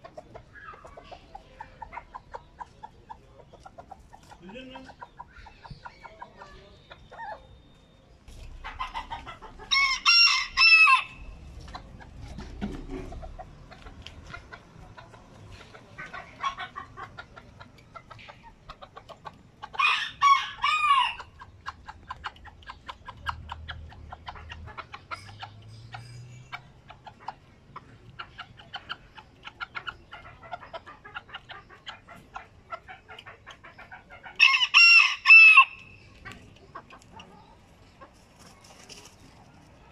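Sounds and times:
soft clucking: 0:00.0 - 0:10.0, 0:11.1 - 0:34.5, 0:35.7 - 0:39.9
rooster crowing: 0:09.7 - 0:11.2, 0:34.4 - 0:35.8.

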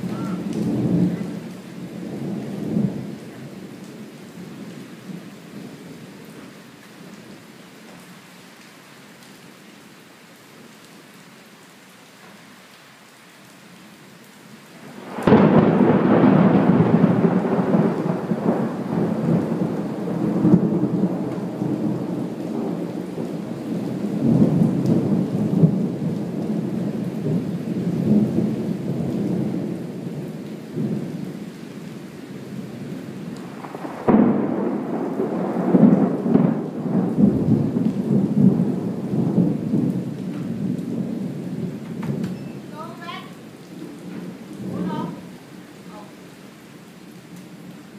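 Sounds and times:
thunder crack and rumble: 0:00.0 - 0:04.0, 0:14.9 - 0:31.2, 0:33.2 - 0:42.4
steady rain: 0:00.0 - 0:47.9.

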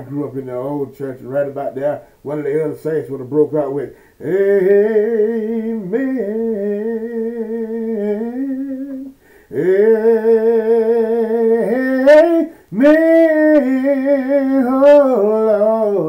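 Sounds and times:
man singing amen: 0:00.0 - 0:16.0
singer breathing in: 0:02.0 - 0:02.2, 0:03.9 - 0:04.2, 0:09.2 - 0:09.6, 0:12.5 - 0:12.7.

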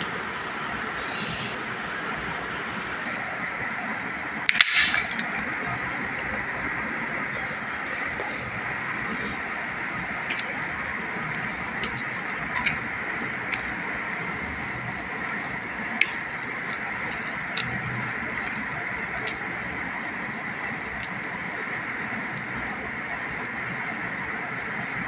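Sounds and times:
fingers squishing wet rice: 0:10.2 - 0:23.6.

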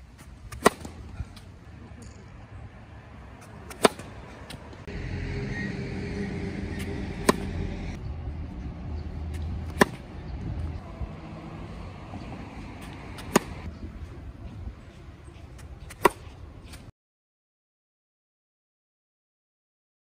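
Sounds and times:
tennis racket striking ball: 0:00.5 - 0:01.0, 0:03.4 - 0:04.6, 0:06.6 - 0:07.9, 0:09.3 - 0:10.1, 0:12.8 - 0:13.7, 0:15.9 - 0:16.3.

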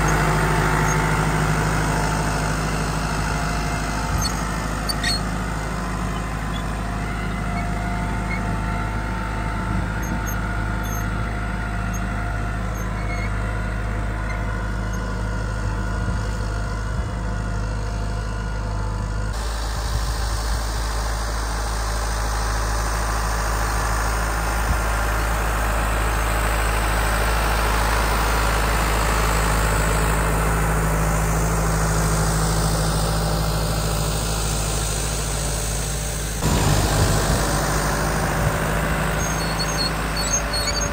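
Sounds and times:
tractor diesel engine under load: 0:00.0 - 0:40.9.

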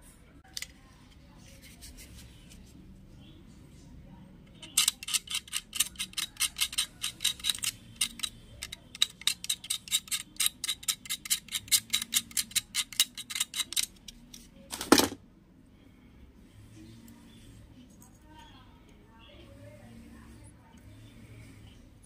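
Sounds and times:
knife blade scraping metal pins: 0:04.6 - 0:13.9.

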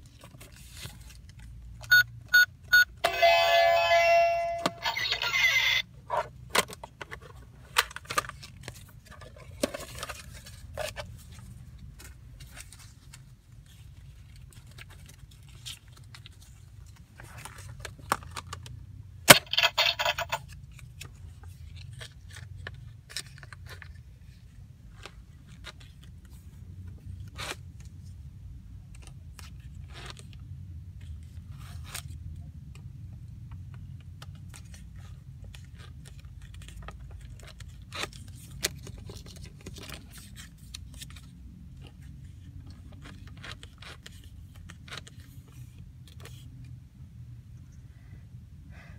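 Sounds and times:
plastic toy clicks and scrapes: 0:19.3 - 0:20.6.

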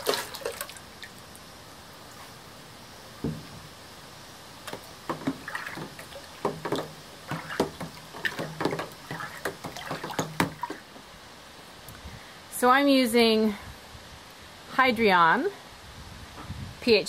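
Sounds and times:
liquid sloshing in a plastic tub: 0:00.0 - 0:01.2, 0:04.6 - 0:10.9.

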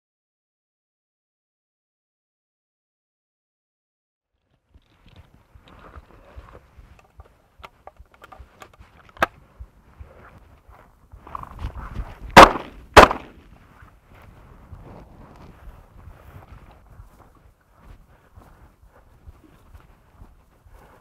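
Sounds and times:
footsteps in dry grass: 0:04.3 - 0:21.0
shotgun shots: 0:12.4 - 0:13.4.

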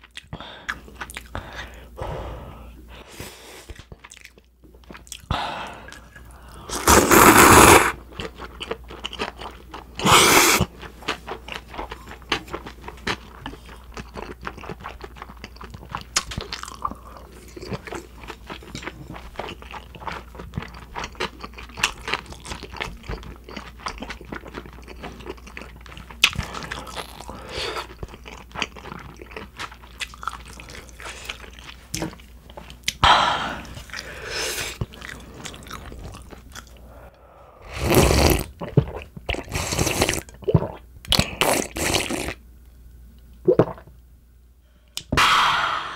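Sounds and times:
slurping noodles: 0:05.9 - 0:08.0, 0:10.0 - 0:10.7, 0:37.6 - 0:38.5, 0:39.3 - 0:40.2, 0:41.2 - 0:42.4
wet chewing: 0:33.8 - 0:36.8
rush of noise: 0:45.2 - 0:45.9.

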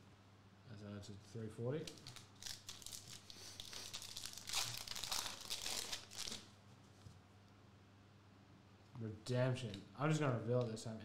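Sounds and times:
foil wrapper crinkling: 0:01.9 - 0:06.5.

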